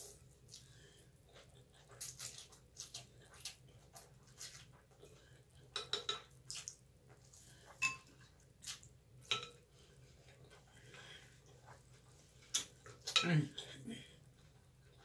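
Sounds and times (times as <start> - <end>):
utensils clinking on glass bowl: 7.8 - 8.1.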